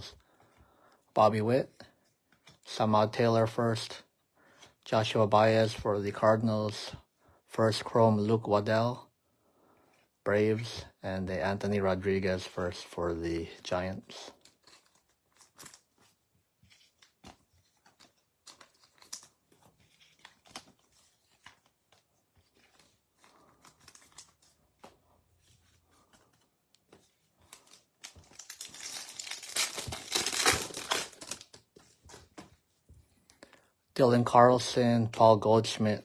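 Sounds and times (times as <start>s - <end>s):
cards being handled: 2.0s - 2.7s, 14.3s - 33.6s
foil wrapper tearing and crinkling: 27.5s - 31.7s.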